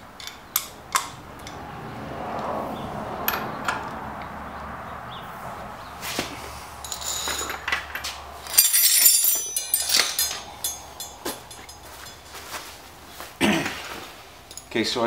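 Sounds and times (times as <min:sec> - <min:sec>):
metal tools clinking: 0:00.0 - 0:01.6, 0:06.8 - 0:14.8.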